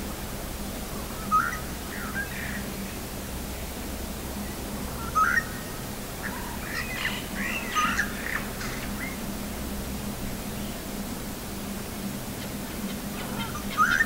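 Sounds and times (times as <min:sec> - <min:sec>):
bird chirping and warbling: 0:12.8 - 0:14.0.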